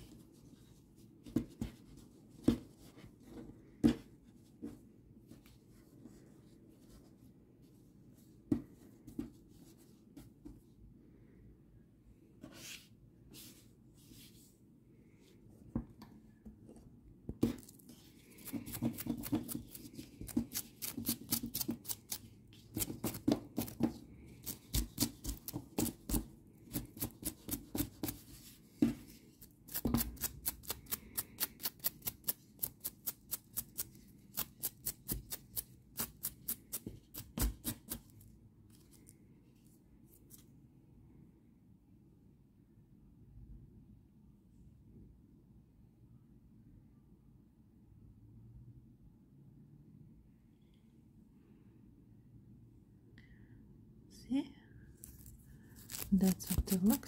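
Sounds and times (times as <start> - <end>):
brush stroking yarn: 17.6 - 39.1, 55.0 - 57.0.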